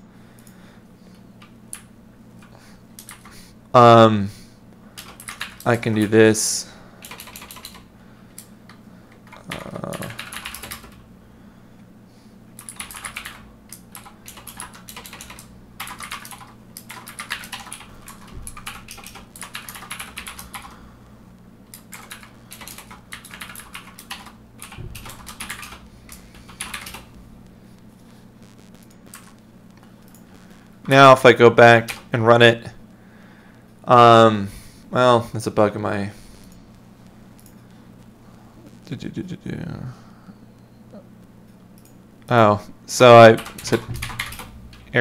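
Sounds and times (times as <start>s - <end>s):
faint steady hum: 0.0s - 45.0s
keyboard typing: 1.4s - 3.4s, 5.0s - 6.1s, 7.0s - 11.0s, 12.6s - 20.8s, 21.7s - 27.2s, 28.8s - 29.4s, 43.3s - 44.9s.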